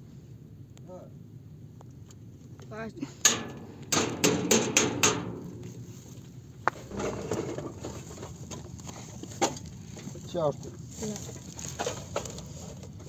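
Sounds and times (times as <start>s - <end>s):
sharp knocks: 3.3s - 7.4s.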